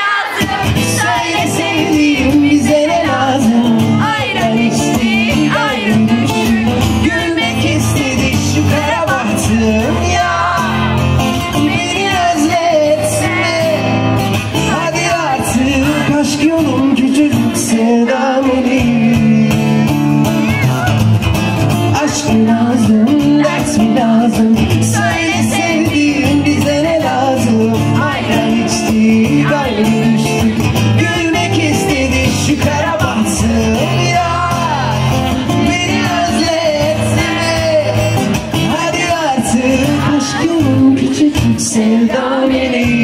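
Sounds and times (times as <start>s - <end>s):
acoustic guitar strumming: 0.0s - 43.0s
person singing: 21.9s - 43.0s.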